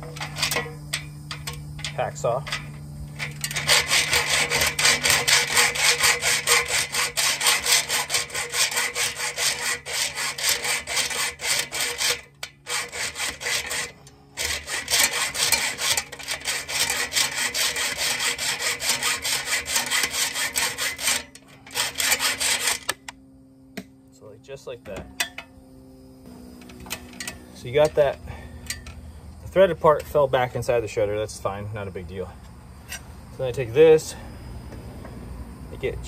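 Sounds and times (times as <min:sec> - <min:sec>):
hacksaw cutting metal screw: 0:00.0 - 0:23.1.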